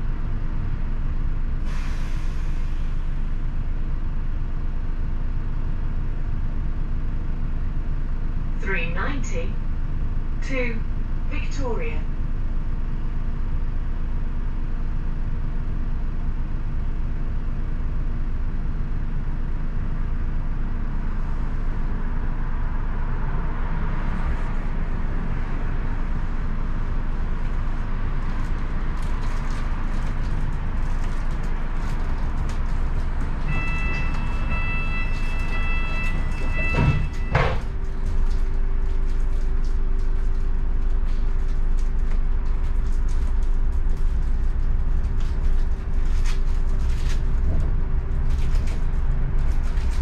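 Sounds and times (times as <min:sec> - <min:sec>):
bus engine and road rumble: 0:00.0 - 0:50.0
door warning beeps: 0:33.5 - 0:37.7.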